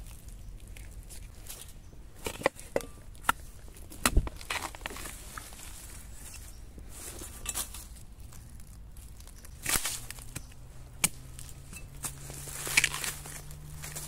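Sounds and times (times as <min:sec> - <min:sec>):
leaf litter rustling and crunching: 0:00.0 - 0:01.8, 0:03.7 - 0:14.0
spade scraping: 0:04.1 - 0:08.0, 0:09.6 - 0:14.0.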